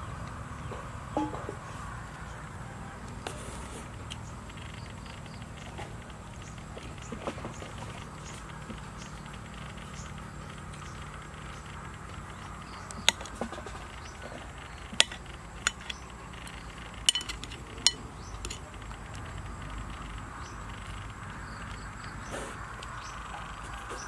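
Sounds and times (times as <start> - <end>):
metal spoon clinking on bowl: 17.0 - 18.6.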